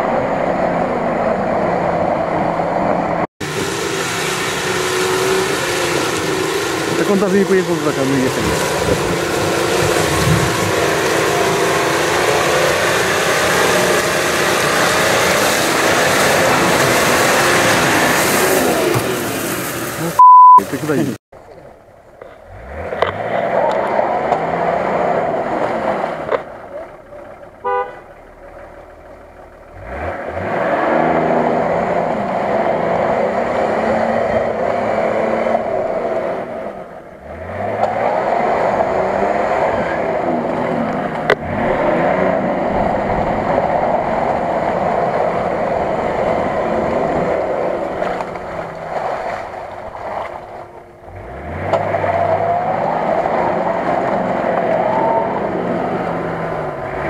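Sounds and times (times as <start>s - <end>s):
engine revving hard: 3.4s - 19.4s, 22.5s - 26.4s, 29.7s - 48.7s, 51.1s - 57.0s.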